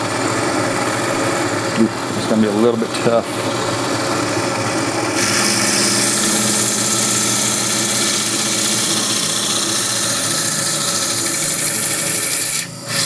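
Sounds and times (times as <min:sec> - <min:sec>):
band saw motor hum: 0:00.0 - 0:13.0
saw blade cutting coral hiss: 0:05.1 - 0:13.0.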